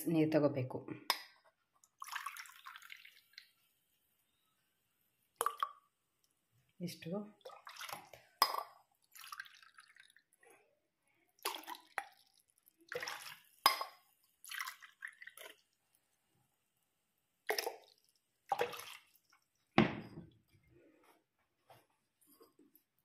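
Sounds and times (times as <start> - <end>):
water popping in a pan: 5.4 - 5.9, 7.4 - 10.3, 11.4 - 15.6.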